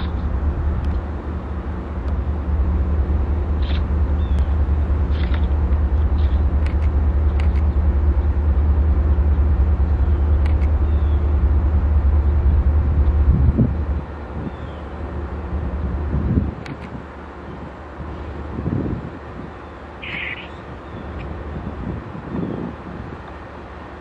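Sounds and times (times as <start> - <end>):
diesel locomotive engine drone: 0.0 - 24.0.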